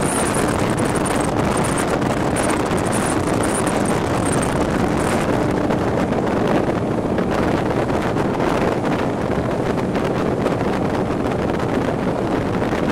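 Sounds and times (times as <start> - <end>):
powerboat engine running: 0.0 - 12.9
wind buffeting microphone: 0.0 - 12.9.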